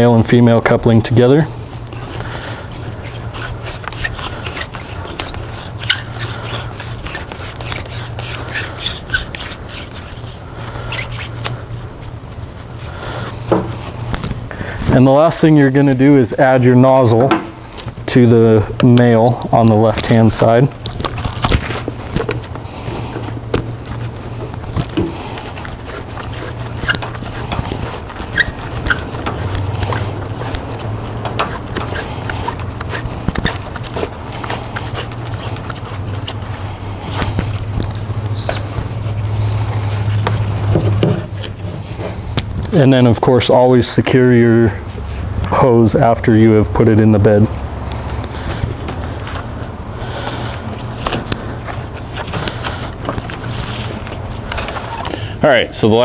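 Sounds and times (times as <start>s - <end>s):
hose jacket rubbing: 0.0s - 56.0s
steady low hum: 0.0s - 56.0s.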